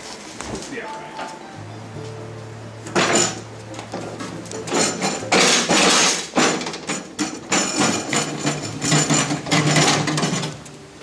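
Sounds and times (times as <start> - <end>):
metal clanks and scrapes on concrete: 3.0 - 10.6.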